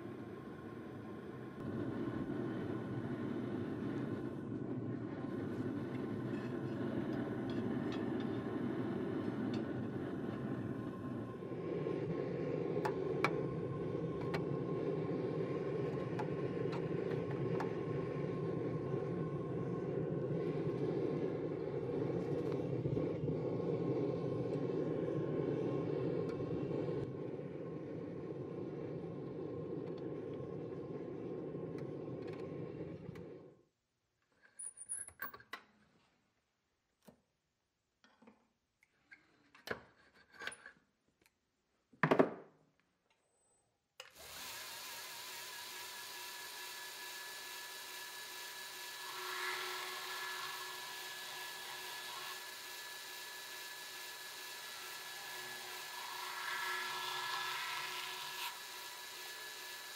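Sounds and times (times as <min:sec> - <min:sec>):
belt grinder running: 0:44.2 - 0:59.9
steel blade on grinder belt: 0:44.2 - 0:59.9.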